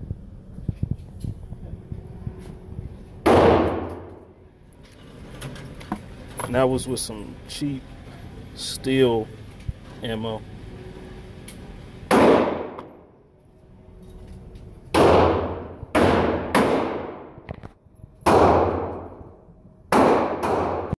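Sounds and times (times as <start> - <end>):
gunshots with echo: 3.2 - 4.2, 12.1 - 12.8, 15.0 - 17.3, 19.9 - 20.9.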